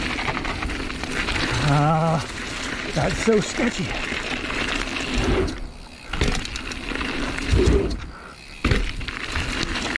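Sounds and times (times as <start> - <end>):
bike tyres rolling on dirt: 0.0 - 10.0
bike landing thud: 6.1 - 6.7, 7.4 - 9.9.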